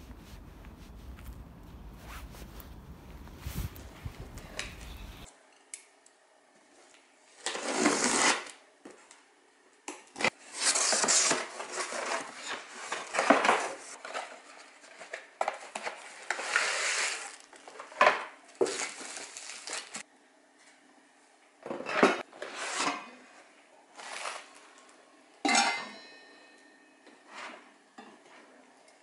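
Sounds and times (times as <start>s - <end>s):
metal pot and lid clinking: 25.5s - 26.6s.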